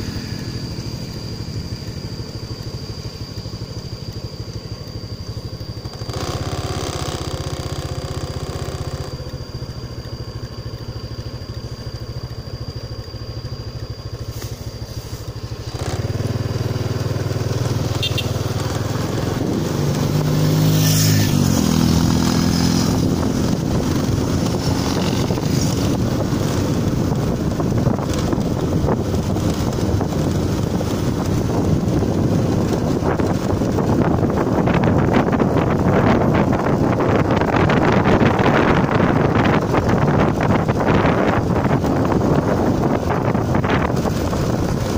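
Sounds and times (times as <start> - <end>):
vehicle engine running: 0.0 - 44.9
wind noise on microphone: 14.2 - 44.9.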